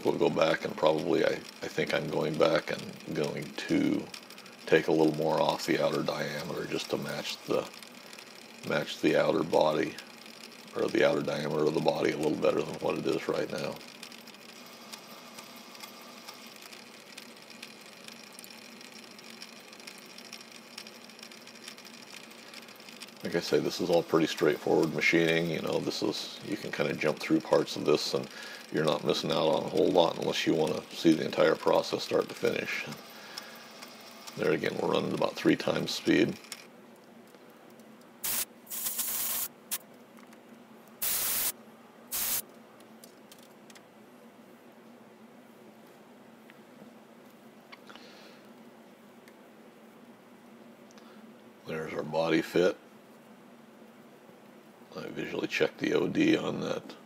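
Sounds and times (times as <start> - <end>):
compressed air blow gun hissing: 38.2 - 39.6, 41.0 - 41.5, 42.1 - 42.4.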